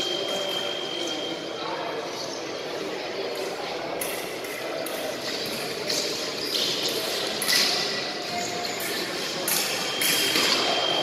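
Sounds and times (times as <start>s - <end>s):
high electronic beep: 0.0s - 1.5s, 9.5s - 11.0s
fencers' footwork: 4.0s - 11.0s.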